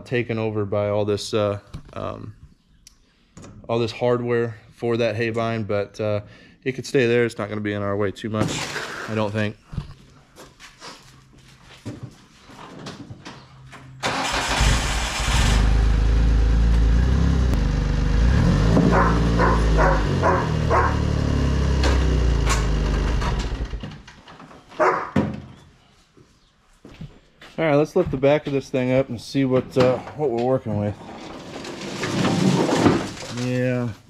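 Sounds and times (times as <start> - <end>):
engine cranking and starting: 14.0 - 17.0, 17.6 - 24.1
engine running and revving: 14.6 - 23.8.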